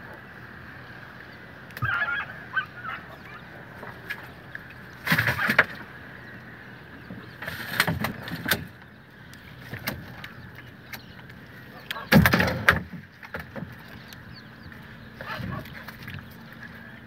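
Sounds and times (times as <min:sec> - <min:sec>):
water splashing: 0:01.6 - 0:17.0
wet fishing net hauled by hand: 0:05.0 - 0:05.8.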